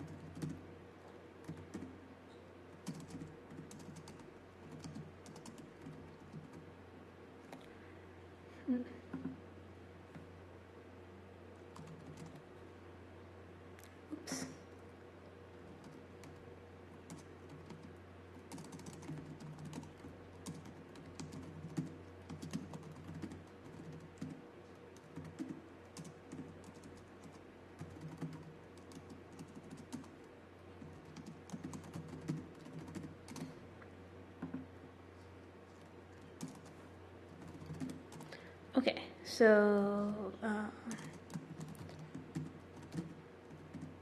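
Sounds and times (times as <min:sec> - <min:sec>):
steady low hum: 0:00.0 - 0:44.0
keyboard typing clicks: 0:02.8 - 0:06.6, 0:11.8 - 0:12.4, 0:18.5 - 0:24.4, 0:36.1 - 0:36.8, 0:37.4 - 0:38.3, 0:40.9 - 0:43.9.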